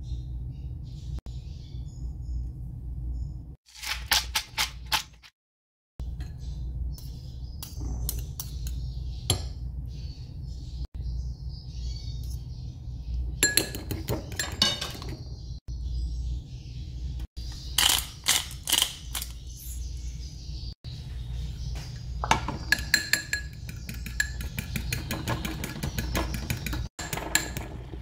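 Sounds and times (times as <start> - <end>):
fork clinking against ceramic bowl: 22.5 - 25.6.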